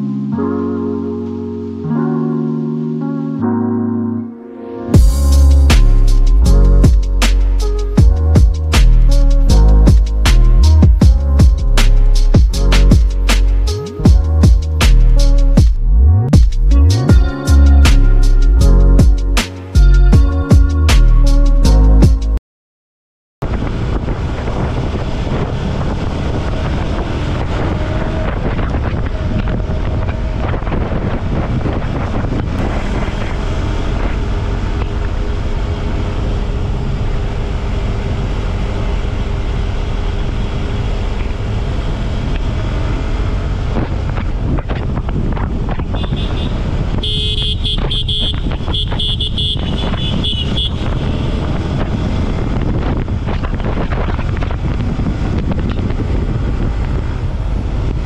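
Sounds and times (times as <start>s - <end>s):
wind noise on microphone: 5.0s - 22.4s, 23.4s - 58.0s
motorcycle engine cruising: 23.5s - 58.0s
horn honking: 45.9s - 51.6s.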